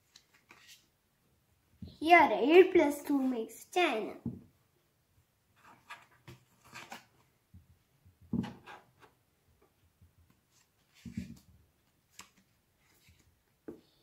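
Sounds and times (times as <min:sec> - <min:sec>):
playing cards slapping and rustling: 0:10.4 - 0:13.8.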